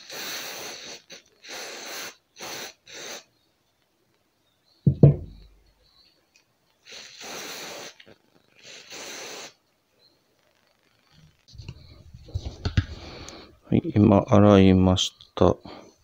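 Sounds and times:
aerosol spray hisses: 0:00.0 - 0:03.3, 0:06.8 - 0:09.6
loud dull thump on bench: 0:04.8 - 0:05.5.

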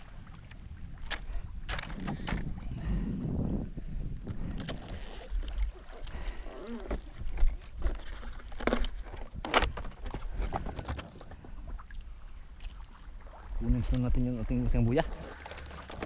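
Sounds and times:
wind rumble on microphone: 0:00.0 - 0:11.8, 0:13.4 - 0:15.2
water sloshing against boat hull: 0:04.2 - 0:16.0.

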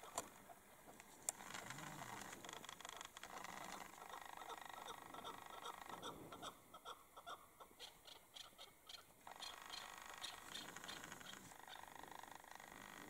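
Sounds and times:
partridge chirping calls: 0:04.0 - 0:12.0.

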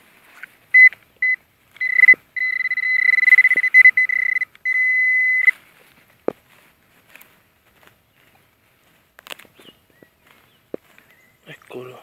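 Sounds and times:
metal detector beeping: 0:00.7 - 0:05.6.

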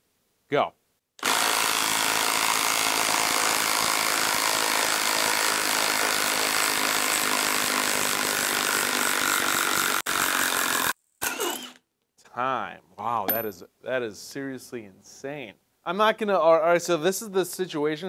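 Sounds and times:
impact wrench hammering: 0:13.3 - 0:13.5.

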